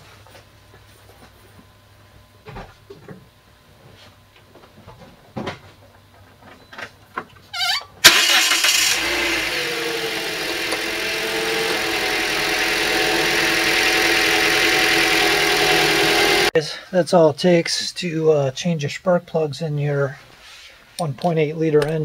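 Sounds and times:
car engine cranking and idling: 0:08.0 - 0:16.5.

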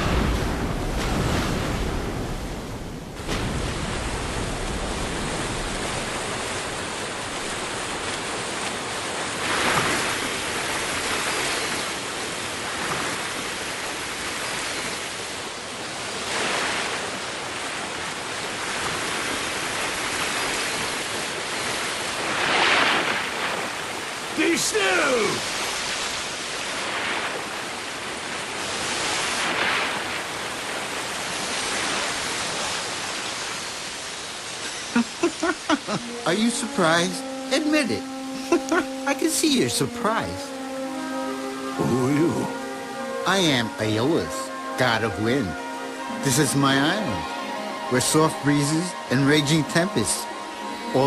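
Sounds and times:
surf breaking against rocks: 0:00.0 - 0:15.2, 0:16.2 - 0:37.8
rush of falling water: 0:00.0 - 0:51.0.

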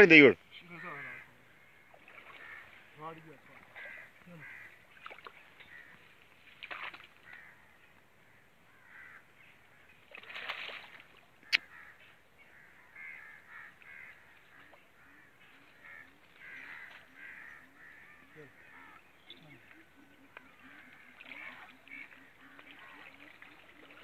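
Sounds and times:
birds calling: 0:00.0 - 0:24.0
water splashing: 0:00.6 - 0:07.8, 0:09.9 - 0:11.6, 0:13.6 - 0:24.0.

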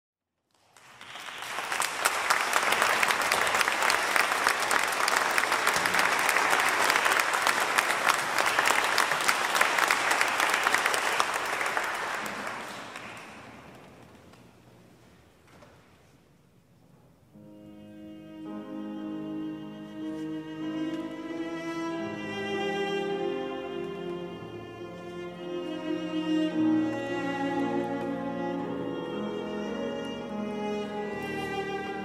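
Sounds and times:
audience applauding: 0:00.5 - 0:13.9.

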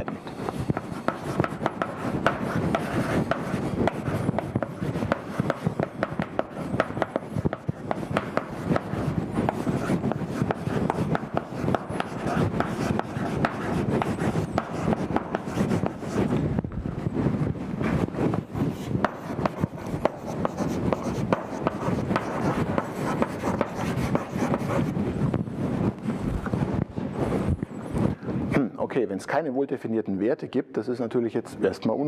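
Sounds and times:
chalk scratching on blackboard: 0:00.0 - 0:16.3, 0:17.9 - 0:25.0.

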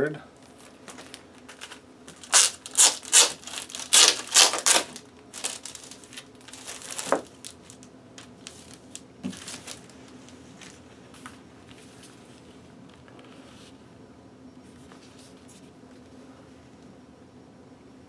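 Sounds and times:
plastic sleeve crinkling: 0:00.4 - 0:11.3
cardboard record jacket rustling: 0:00.4 - 0:13.7.

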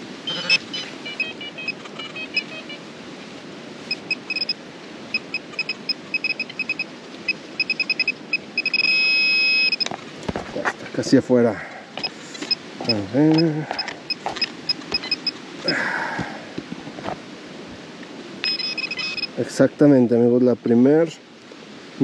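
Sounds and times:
metal detector beeping: 0:00.3 - 0:02.8, 0:03.9 - 0:09.9, 0:12.0 - 0:15.8, 0:18.4 - 0:19.4.

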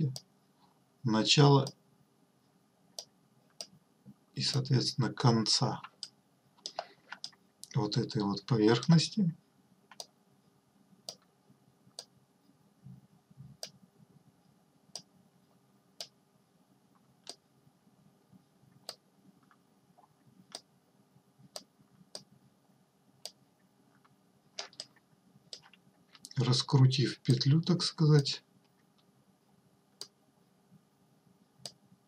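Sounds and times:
computer mouse clicks: 0:05.8 - 0:07.8, 0:09.9 - 0:10.1, 0:11.0 - 0:11.3, 0:13.6 - 0:13.8, 0:18.8 - 0:19.6, 0:20.5 - 0:20.7, 0:24.6 - 0:26.4.

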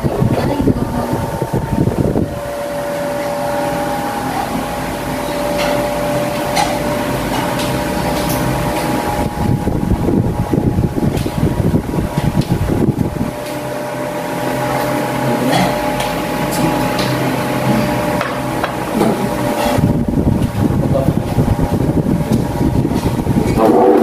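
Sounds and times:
air rushing over microphone: 0:00.0 - 0:02.6, 0:09.2 - 0:13.4, 0:19.7 - 0:24.0
electric fan whirring: 0:00.0 - 0:24.0.

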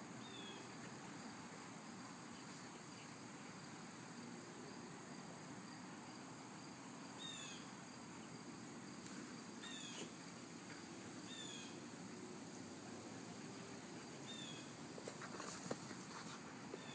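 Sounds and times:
high-pitched drone of insects: 0:02.8 - 0:09.0, 0:09.6 - 0:10.4, 0:11.1 - 0:14.8.

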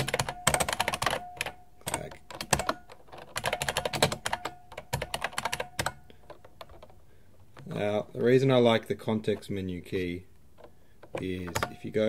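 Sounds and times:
mechanical keyboard typing: 0:00.0 - 0:07.0, 0:10.6 - 0:12.0.

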